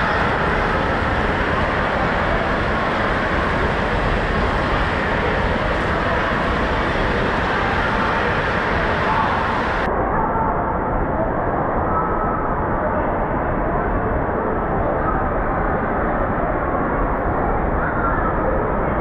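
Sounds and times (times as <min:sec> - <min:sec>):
large crowd noise: 0:00.0 - 0:19.0.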